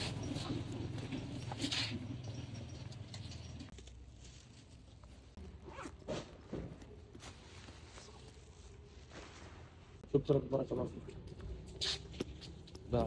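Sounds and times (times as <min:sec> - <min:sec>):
faint rustling and scraping: 0:00.0 - 0:10.1.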